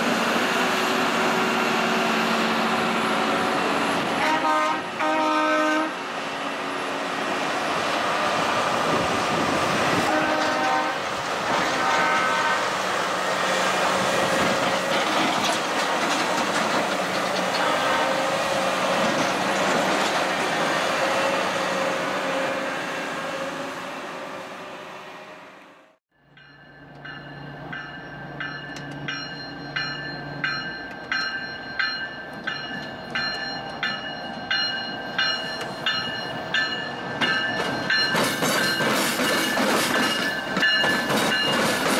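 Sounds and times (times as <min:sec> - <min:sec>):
rail machine engine running: 0:00.0 - 0:41.9
short horn blasts: 0:04.2 - 0:06.0, 0:10.1 - 0:12.7, 0:17.6 - 0:18.4
wheels clicking over track joints: 0:14.4 - 0:17.8.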